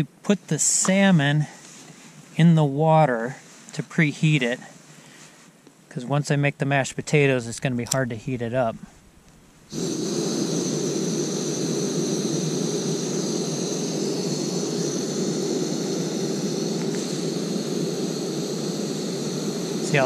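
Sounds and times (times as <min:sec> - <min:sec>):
burner hissing: 0:06.9 - 0:20.0.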